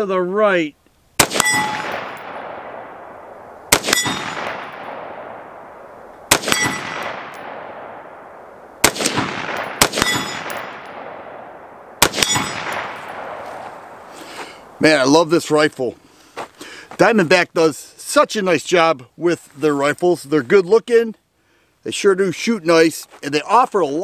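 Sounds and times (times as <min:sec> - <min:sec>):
rifle shots with echo: 0:01.2 - 0:14.1
short metallic ring: 0:01.4 - 0:02.3, 0:03.9 - 0:04.8, 0:06.5 - 0:07.0, 0:10.0 - 0:10.7, 0:12.2 - 0:13.2.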